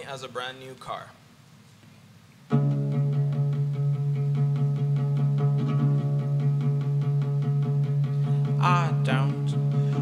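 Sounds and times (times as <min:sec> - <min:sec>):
classical guitar strumming: 0:02.5 - 0:10.0.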